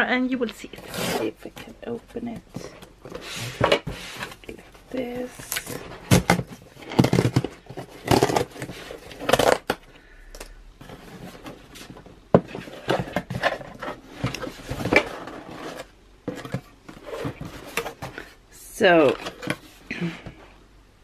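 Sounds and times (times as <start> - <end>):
cardboard scraping and tearing: 0.8 - 1.6
cardboard flaps rustling: 10.8 - 19.8.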